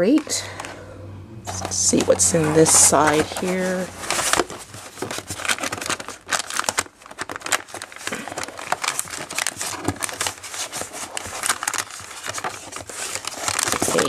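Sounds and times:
foil sachet crinkling: 1.5s - 14.0s
plastic packaging crinkling: 1.5s - 14.0s.

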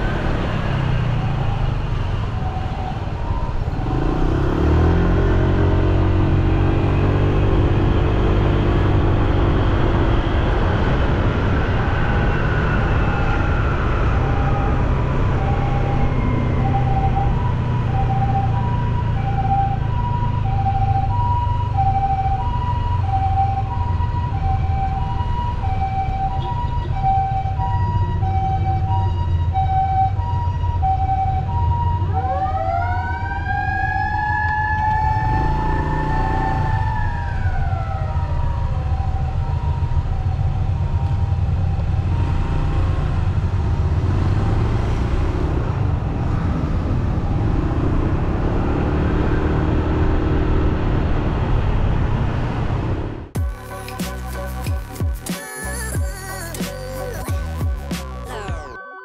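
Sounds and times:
mechanical motor siren howling: 0.0s - 10.6s, 11.4s - 44.1s
road and traffic rumble: 0.0s - 58.7s
electronic two-tone siren: 11.6s - 43.6s, 53.4s - 59.0s.

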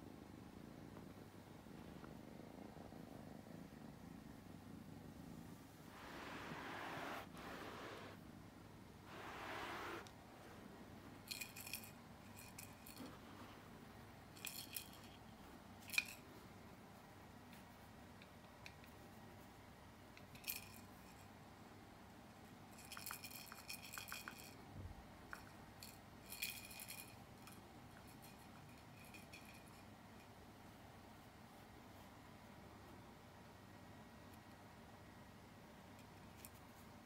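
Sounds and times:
small jingle bell jingling: 11.2s - 13.2s, 14.3s - 16.2s, 22.7s - 24.6s, 25.4s - 30.3s.

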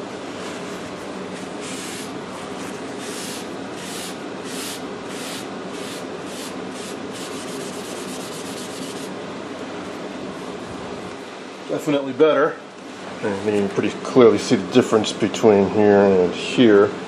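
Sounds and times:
paper towel wiping wood: 0.4s - 9.1s.

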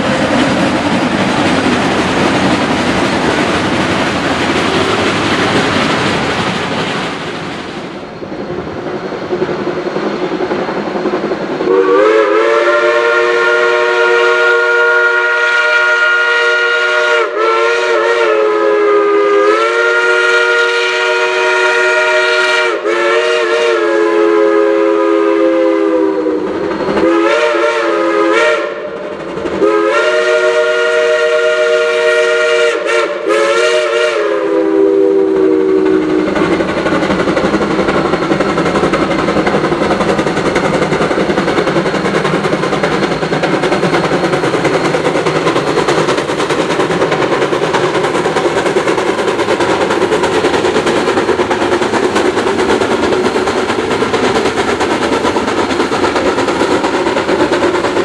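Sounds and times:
train rolling on track: 0.0s - 58.0s
steam locomotive chime whistle: 11.7s - 36.4s.

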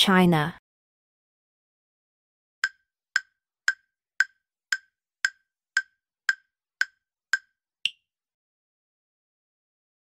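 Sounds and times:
countdown timer ticks: 2.6s - 8.0s.

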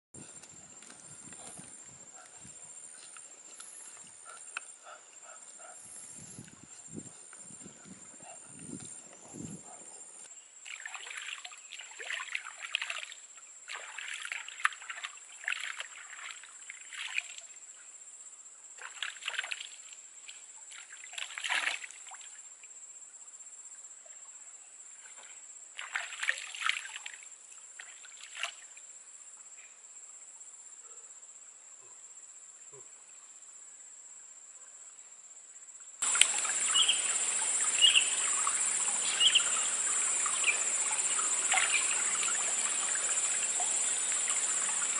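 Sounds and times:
chirping insects: 0.2s - 44.9s
water splashing: 10.6s - 17.5s, 18.8s - 19.9s, 20.7s - 22.4s, 25.0s - 27.2s, 36.0s - 44.9s.

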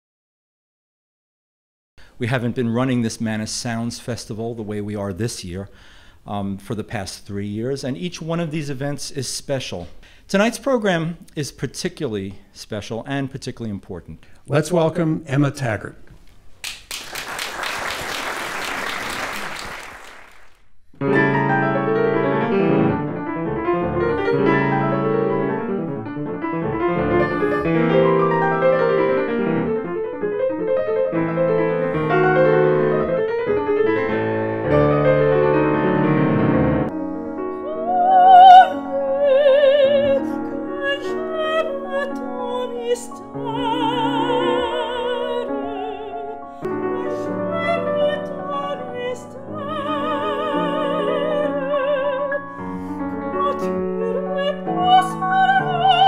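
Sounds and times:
audience applauding: 16.6s - 20.7s
grand piano playing classical music: 21.0s - 56.0s
soprano singing operatically: 27.1s - 28.7s, 37.0s - 56.0s.

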